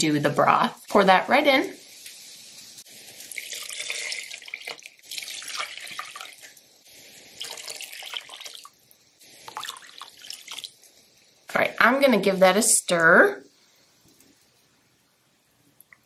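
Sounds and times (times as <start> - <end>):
liquid pouring and splashing: 1.8 - 11.1.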